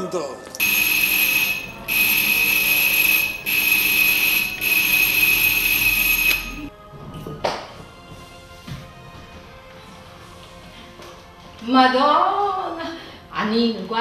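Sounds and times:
electric buzzer: 0.6s - 6.7s.

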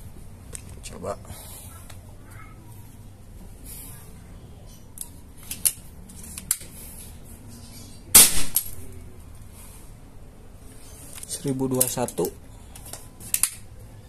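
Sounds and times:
air rifle shot: 8.1s - 8.7s.

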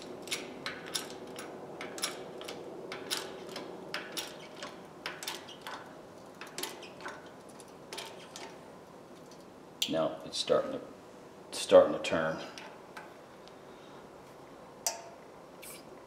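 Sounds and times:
metal wrench clicking on wood: 0.2s - 8.6s.

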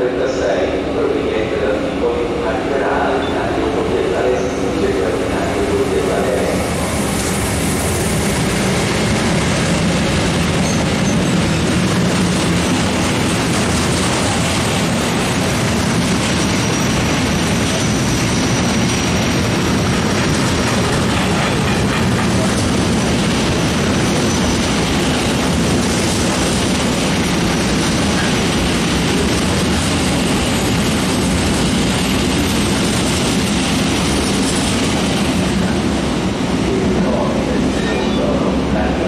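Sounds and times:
train wheels rumbling on rail: 0.0s - 39.0s.

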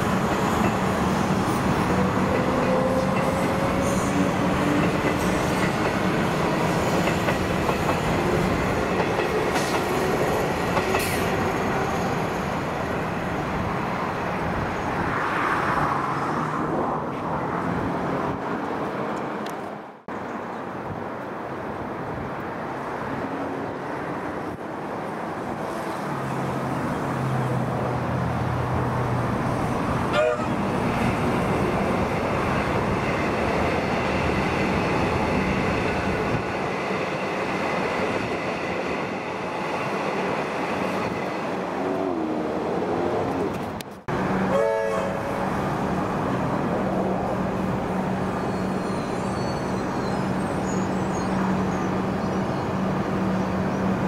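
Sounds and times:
train wheels rumbling on rail: 0.0s - 14.6s, 27.3s - 54.0s.

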